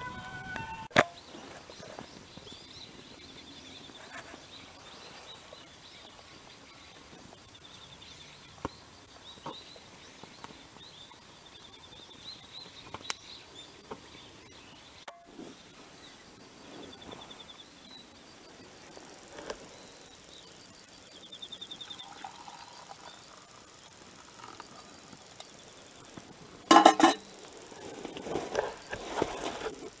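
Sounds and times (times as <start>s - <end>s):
high-pitched insect trills: 19.9s - 26.4s
metal cup clanking on metal stand: 26.7s - 27.2s.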